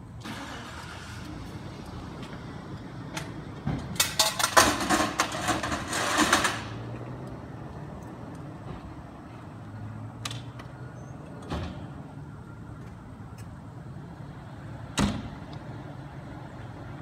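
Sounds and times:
vehicle engine cranking and starting: 0.2s - 1.9s, 4.0s - 6.9s.

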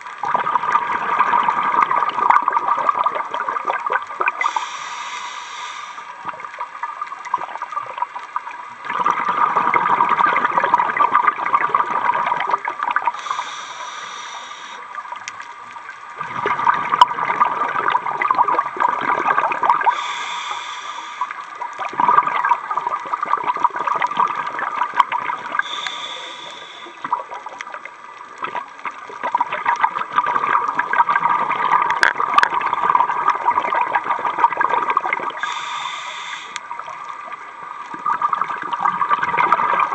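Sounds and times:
exhaled bubbles rushing: 0.2s - 4.6s, 6.2s - 13.4s, 16.2s - 20.2s, 21.2s - 35.9s, 36.6s - 39.9s
diver breathing through regulator: 4.4s - 6.2s, 13.1s - 14.8s, 19.8s - 21.5s, 25.6s - 27.2s, 35.4s - 36.6s.

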